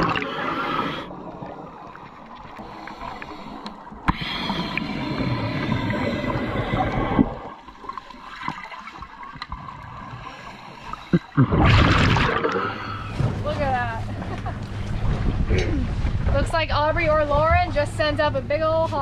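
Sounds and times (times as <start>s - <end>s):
air bubbling underwater: 11.1s - 13.2s.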